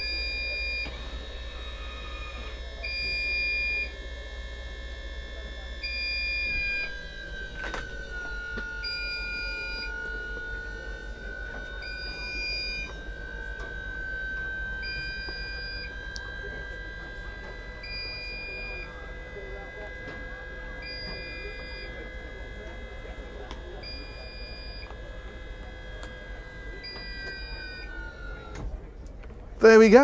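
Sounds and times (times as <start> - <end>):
warning beeps: 0.0 - 3.9, 5.8 - 28.6
roof drive motor whine: 0.0 - 30.0.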